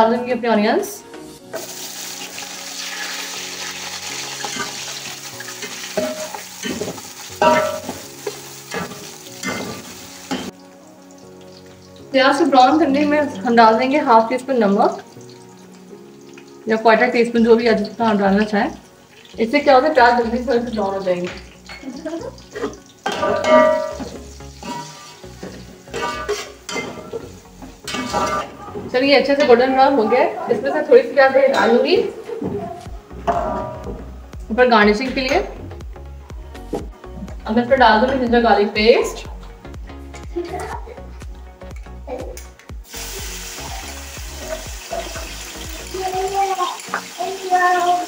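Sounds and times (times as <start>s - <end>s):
onions sizzling in a pot: 1.2s - 32.2s, 42.8s - 48.0s
metal spoon scraping a pot: 22.5s - 27.2s
metal spoon scraping pot: 25.9s - 27.2s.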